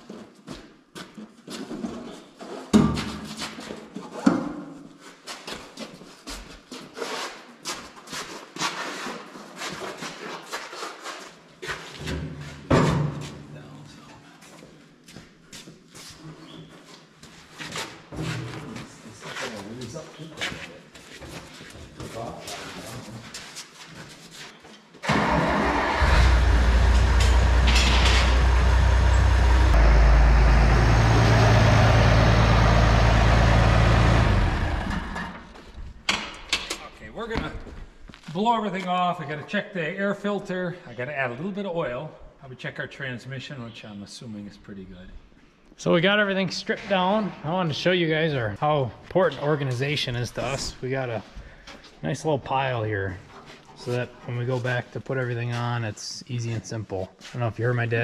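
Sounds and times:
footsteps on concrete floor: 0:00.0 - 0:25.0, 0:35.4 - 0:36.0, 0:37.2 - 0:39.0, 0:56.5 - 0:57.6
tractor diesel engine starting: 0:25.0 - 0:35.5
tractor engine running: 0:25.1 - 0:35.5.

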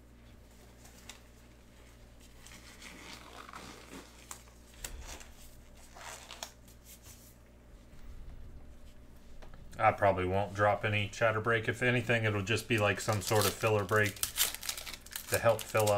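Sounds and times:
low hum: 0:00.0 - 0:12.8
packaging rustling and crinkling: 0:12.5 - 0:15.9.

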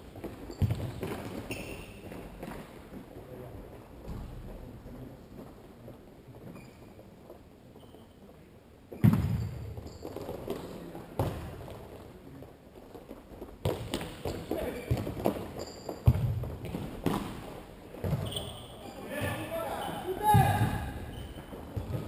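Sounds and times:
ball kicked with echoing knocks: 0:09.0 - 0:09.6.

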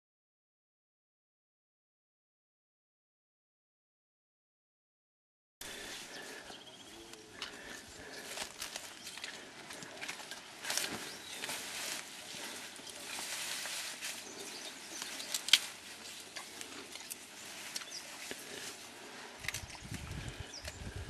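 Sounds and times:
foliage rustling: 0:05.6 - 0:21.0
stems crackling and snapping: 0:05.6 - 0:21.0.

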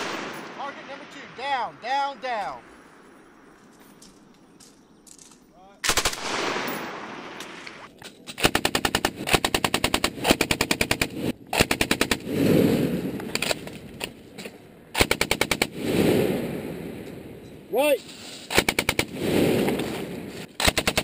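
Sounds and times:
machine guns firing bursts: 0:05.8 - 0:07.4, 0:08.4 - 0:12.3, 0:15.0 - 0:15.9, 0:18.5 - 0:19.6, 0:20.5 - 0:21.0.

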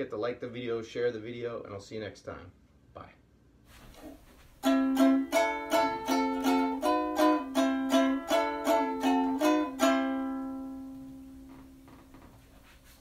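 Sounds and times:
strummed string instrument chords: 0:04.6 - 0:11.9.

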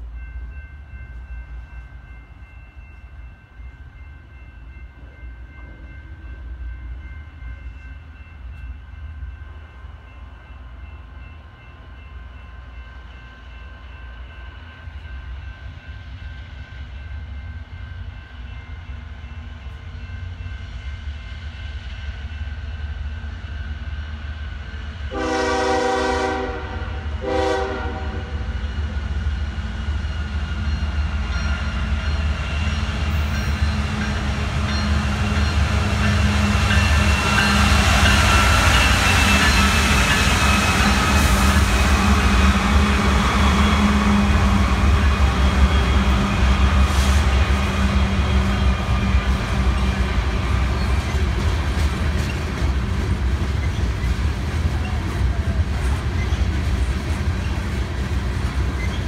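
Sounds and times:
diesel locomotives rumbling: 0:00.0 - 0:59.0
train air horn blasts: 0:25.1 - 0:28.5.

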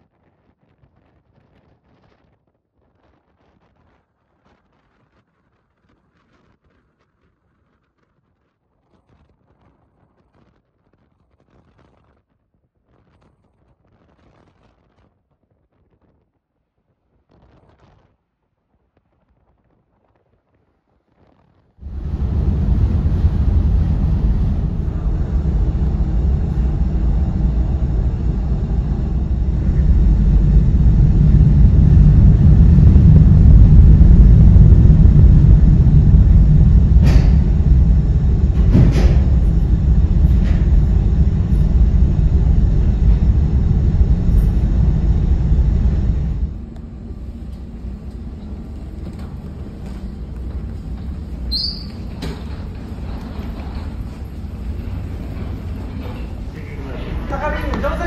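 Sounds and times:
ferry engines rumbling: 0:21.8 - 0:58.0.

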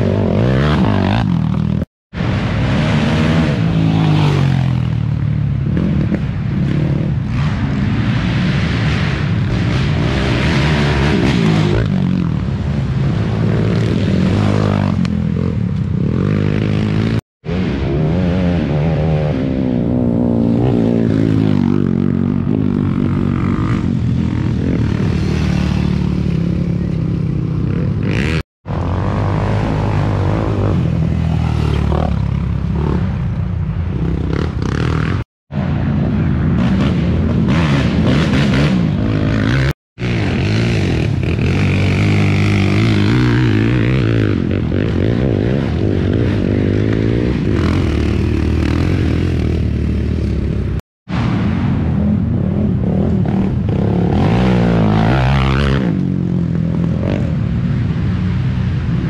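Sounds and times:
quad engines revving: 0:36.5 - 0:50.8.

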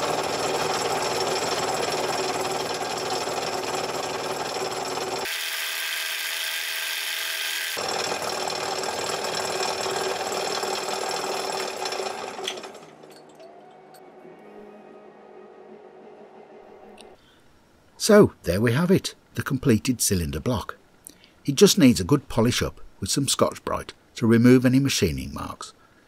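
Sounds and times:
router bit cutting metal: 0:00.0 - 0:12.7
milling machine whirring: 0:00.0 - 0:14.0.

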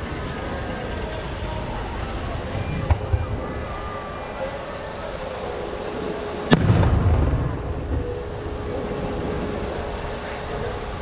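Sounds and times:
background noise: 0:00.0 - 0:11.0
firework boom: 0:06.5 - 0:08.2.

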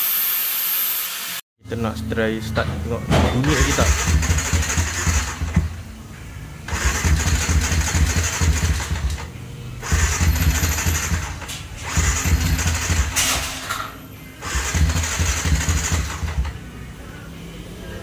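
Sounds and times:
motorcycle engine surging: 0:03.4 - 0:05.8, 0:06.7 - 0:13.2, 0:14.4 - 0:17.3
engine knock: 0:03.5 - 0:05.7, 0:06.7 - 0:09.2, 0:11.9 - 0:13.1, 0:14.5 - 0:16.5.

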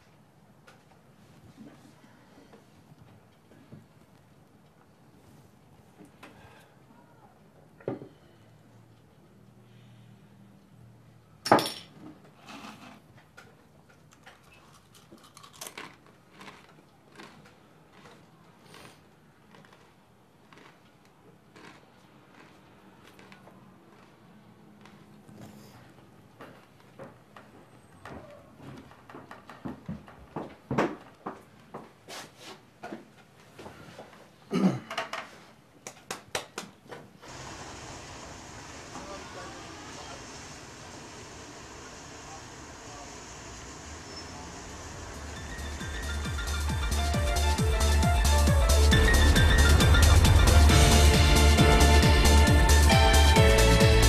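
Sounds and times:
chair being moved: 0:12.0 - 0:13.1
loud thump: 0:48.5 - 0:52.9.

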